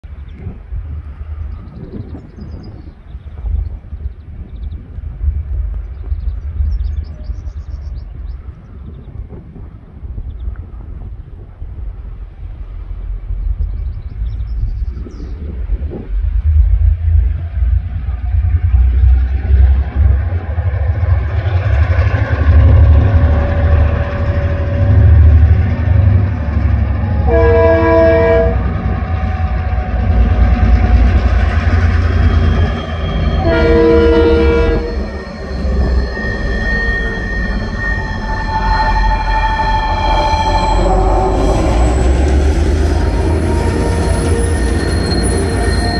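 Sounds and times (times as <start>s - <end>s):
diesel locomotive engines rumbling: 0.0s - 45.9s
multi-tone train horn: 27.0s - 30.6s, 33.1s - 35.2s, 35.8s - 42.0s
high wheel squeal: 28.9s - 45.9s.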